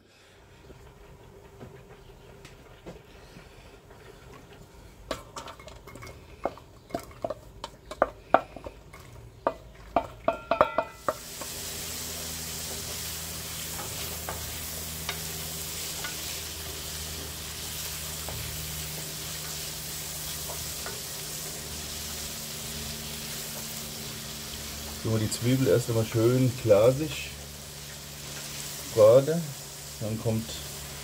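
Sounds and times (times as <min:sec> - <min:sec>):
wooden spoon stirring: 0:03.9 - 0:11.6
onions sizzling in oil: 0:04.2 - 0:31.0.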